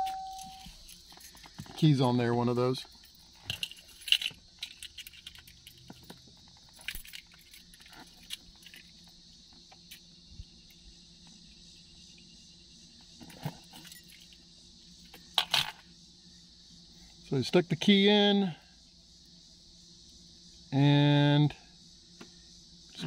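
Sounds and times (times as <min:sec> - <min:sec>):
keys jingling: 0:00.0 - 0:01.5, 0:03.0 - 0:09.0
insects buzzing: 0:00.0 - 0:23.0.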